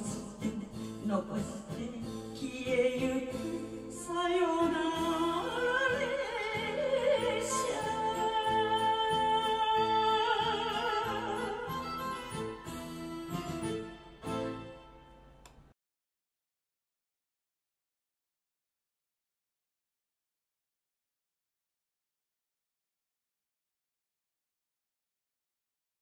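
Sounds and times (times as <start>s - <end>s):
woman singing into microphone: 0.0s - 12.2s
karaoke backing track: 0.0s - 15.1s.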